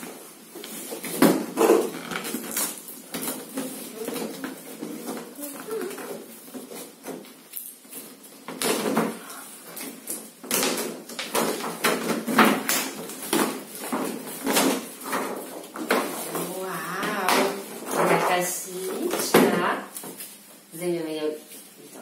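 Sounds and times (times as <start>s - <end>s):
plastic wrapping crinkling: 0.0s - 22.0s
child's voice: 5.3s - 6.2s.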